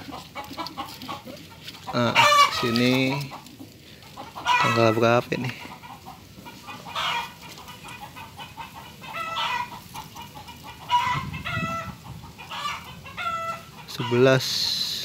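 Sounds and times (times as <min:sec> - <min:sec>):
chickens clucking: 0:00.0 - 0:15.0.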